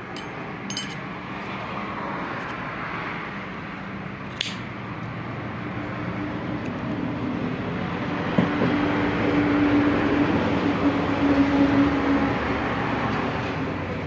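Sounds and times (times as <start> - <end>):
passing vehicle engine drone: 5.1 - 14.0.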